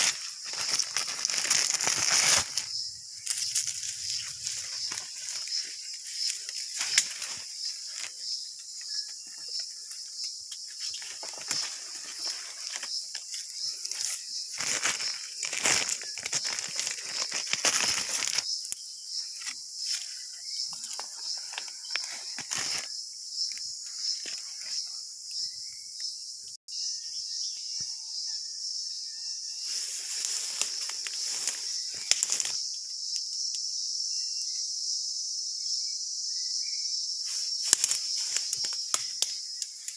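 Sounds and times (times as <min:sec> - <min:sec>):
leaves rustling and crackling: 0:00.0 - 0:22.9, 0:29.6 - 0:32.8, 0:37.3 - 0:39.9
high-pitched insect chorus: 0:00.0 - 0:39.9.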